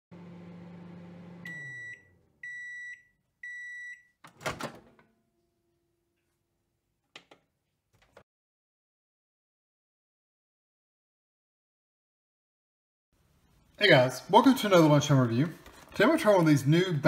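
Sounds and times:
microwave oven humming: 0.1 - 2.7.

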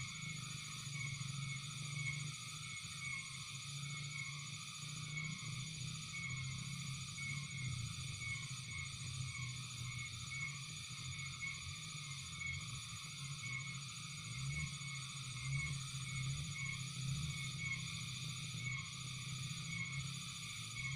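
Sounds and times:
frog chorus: 0.0 - 20.9
high insect trill: 0.0 - 20.9.

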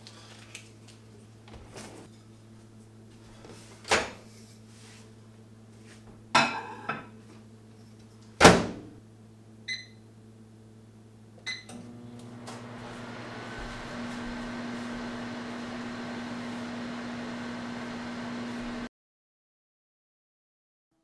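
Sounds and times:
microwave running hum: 0.0 - 18.9.

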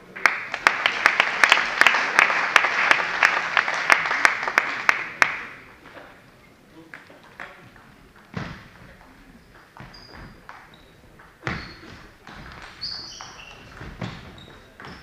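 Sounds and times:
shoes squeaking on floor: 8.2 - 15.0.

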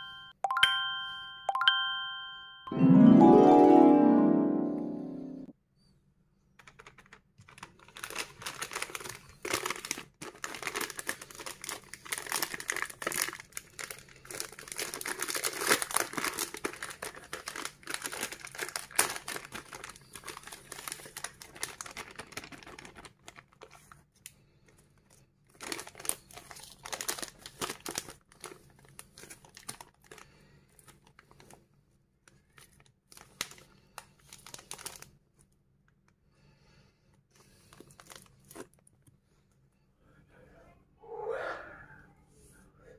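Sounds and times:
plastic wrapper crinkling: 6.6 - 24.4, 25.0 - 31.6, 32.2 - 35.5, 37.4 - 39.1.

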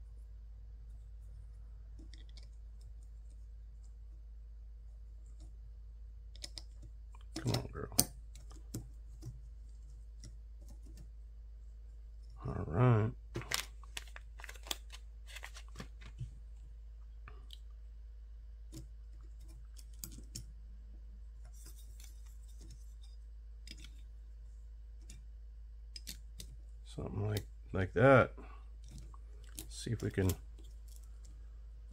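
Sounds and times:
clicks and taps of small parts: 6.3 - 11.1, 18.7 - 20.5, 21.4 - 24.0, 25.9 - 26.6.

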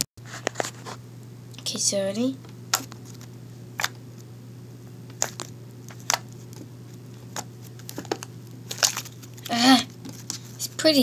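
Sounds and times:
slime popping and squelching: 5.1 - 6.7.

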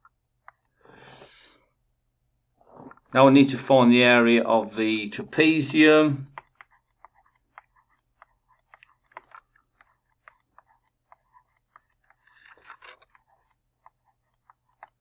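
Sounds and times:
scratchy pen stroke: 5.4 - 12.4
stylus tapping on tablet: 5.6 - 12.2.

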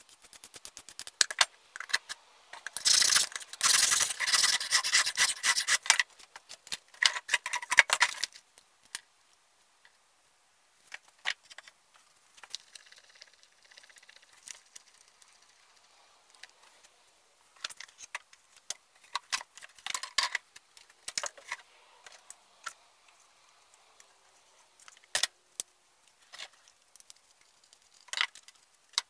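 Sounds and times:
tools scraping and rustling: 0.0 - 8.5, 16.3 - 25.3.

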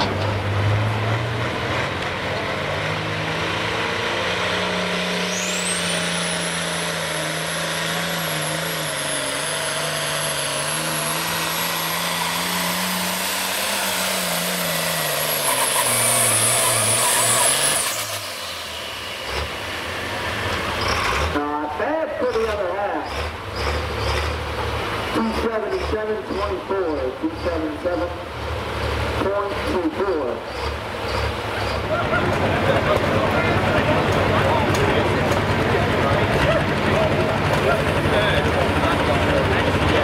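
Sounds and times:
diesel tractor engine at full power: 0.0 - 40.0
high turbo whistle: 5.2 - 9.4.

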